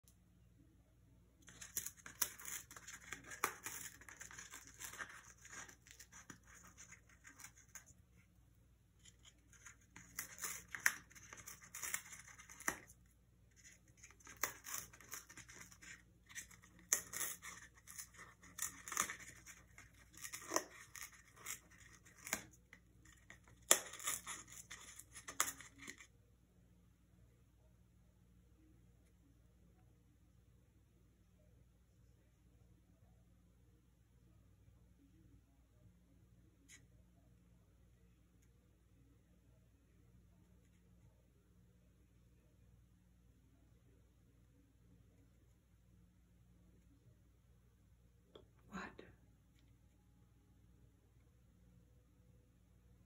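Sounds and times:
parrot tearing cardboard: 0:01.4 - 0:08.3, 0:09.0 - 0:26.1.

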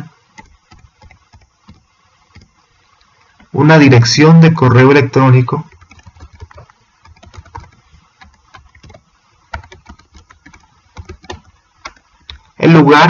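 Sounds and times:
keyboard typing: 0:00.0 - 0:02.6, 0:05.6 - 0:12.6.

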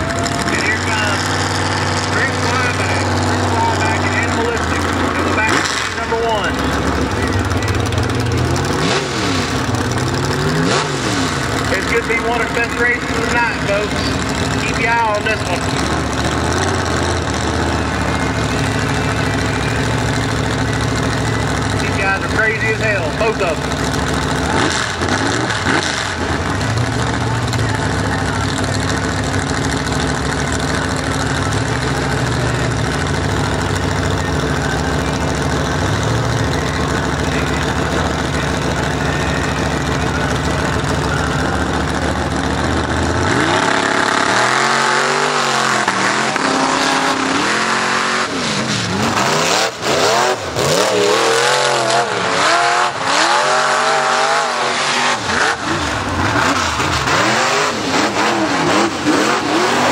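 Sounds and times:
truck engine revving: 0:00.0 - 0:59.9.

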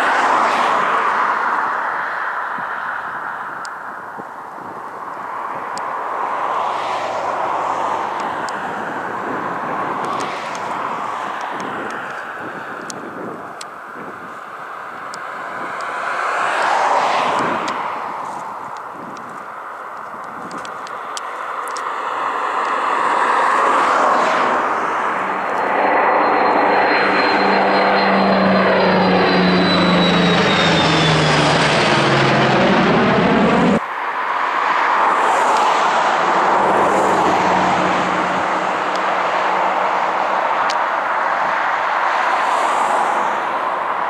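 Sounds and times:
jet engines roaring in flight: 0:00.0 - 0:44.0
jet pod whine: 0:00.0 - 0:44.0
propeller plane engines droning: 0:00.0 - 0:44.0.

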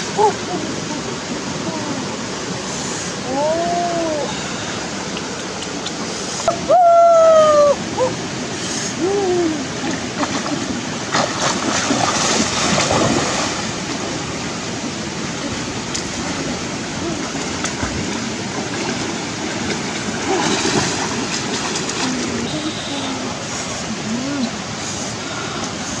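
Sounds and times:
stream flowing: 0:00.0 - 0:26.0
person splashing through water: 0:10.1 - 0:14.1, 0:15.9 - 0:22.6.

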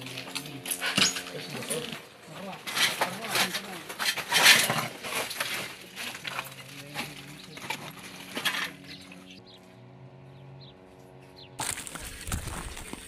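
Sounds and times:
rubble clinking and knocking: 0:00.0 - 0:09.2
steady low hum: 0:00.0 - 0:13.0.

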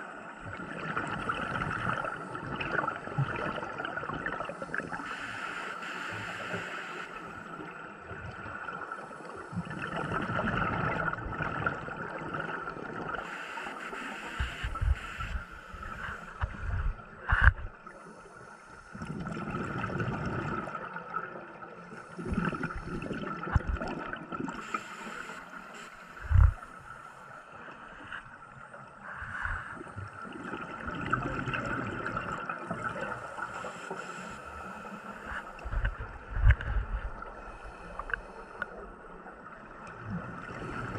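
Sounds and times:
scuba regulator hiss: 0:05.0 - 0:07.3, 0:13.2 - 0:16.3, 0:24.6 - 0:26.3
bubbly rumbles of exhaled air: 0:09.6 - 0:13.2, 0:19.0 - 0:21.0, 0:22.2 - 0:24.6, 0:26.2 - 0:26.8, 0:29.1 - 0:33.4, 0:34.6 - 0:40.9.

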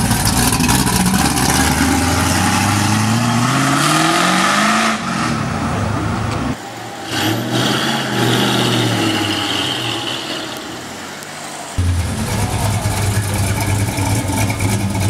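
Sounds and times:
car engine accelerating: 0:00.0 - 0:15.0
car engine running at low revs: 0:11.8 - 0:15.0.

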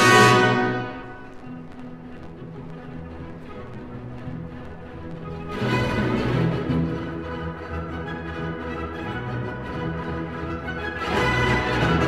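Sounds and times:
orchestral music: 0:00.0 - 0:12.0.

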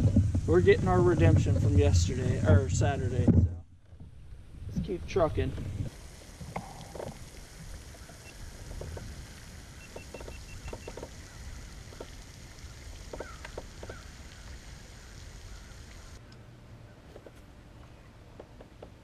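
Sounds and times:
wind rumble on microphone: 0:00.0 - 0:16.2
bird chirps: 0:09.7 - 0:11.6.

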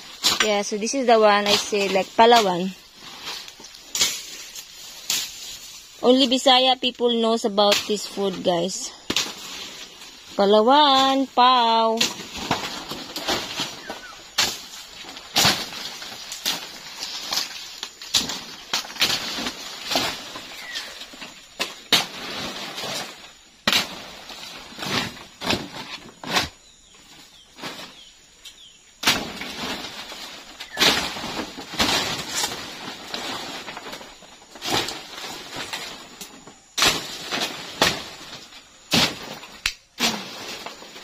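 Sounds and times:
leaves and undergrowth rustling: 0:00.0 - 0:41.0
stems snapping: 0:01.3 - 0:05.8, 0:11.9 - 0:22.2, 0:34.6 - 0:40.9.

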